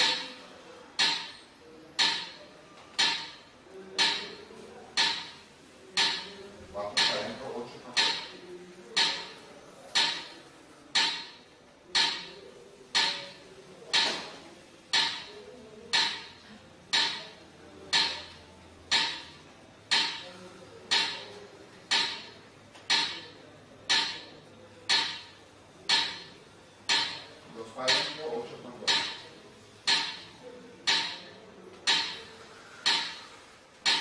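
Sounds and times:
metronome clicking: 21.9s - 23.3s, 24.9s - 26.3s, 26.9s - 27.3s, 28.9s - 29.2s, 30.9s - 31.3s, 31.9s - 33.2s.

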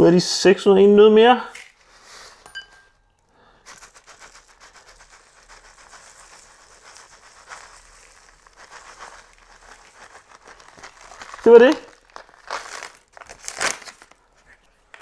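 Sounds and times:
muesli pattering into plastic bowl: 5.0s - 15.0s.

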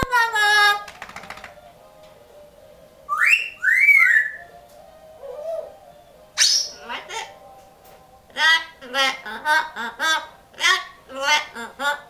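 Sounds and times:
parrot whistling: 3.1s - 4.6s, 5.2s - 7.2s.

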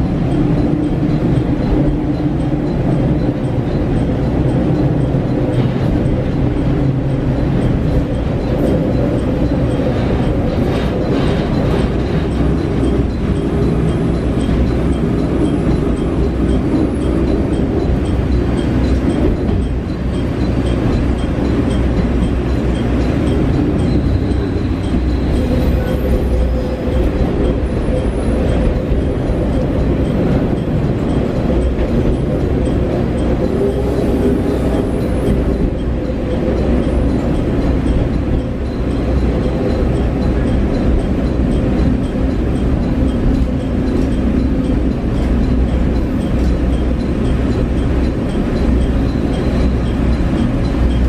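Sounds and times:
train wheels on rails: 0.0s - 51.0s.

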